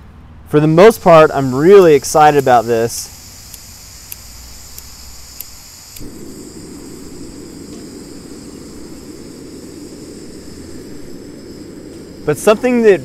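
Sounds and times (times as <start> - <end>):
gas stove burner rushing: 1.3 - 13.0
lighter clicking: 3.4 - 6.2.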